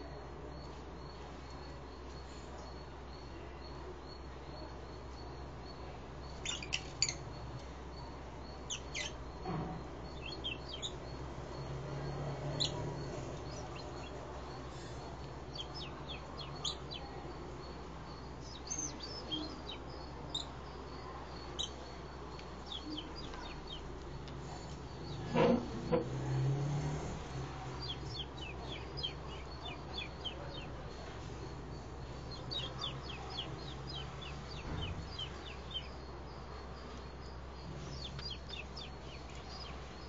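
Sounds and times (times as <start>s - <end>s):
lovebirds chirping: 0.0s - 40.0s
steady low hum: 0.0s - 40.0s.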